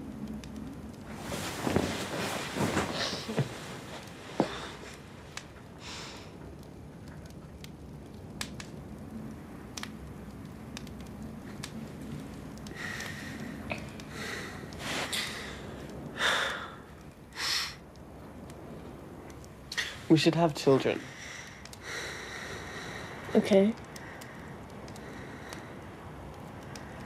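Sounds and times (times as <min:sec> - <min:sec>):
person breathing: 0:04.4 - 0:05.0, 0:12.7 - 0:17.8, 0:21.0 - 0:23.3, 0:24.0 - 0:25.8.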